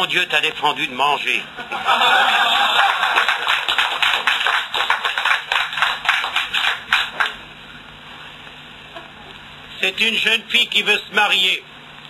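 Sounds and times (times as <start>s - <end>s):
audience applauding: 2.0s - 7.4s.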